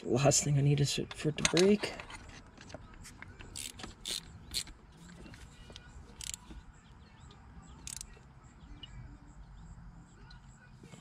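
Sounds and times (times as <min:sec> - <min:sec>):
hand ratchet clicking: 0:03.4 - 0:04.8, 0:06.1 - 0:06.5, 0:07.8 - 0:08.1.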